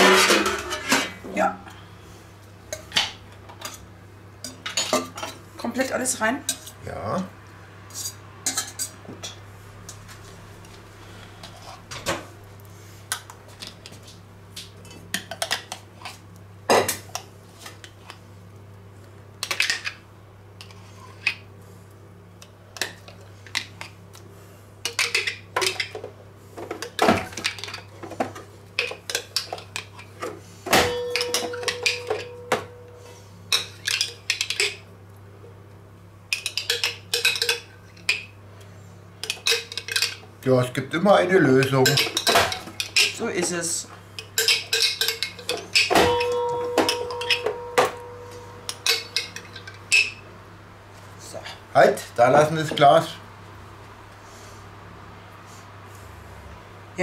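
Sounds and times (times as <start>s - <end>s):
kitchen utensils clattering: 0.0s - 1.2s, 30.7s - 32.8s, 41.6s - 50.2s
metal knock ringing: 46.0s - 48.4s.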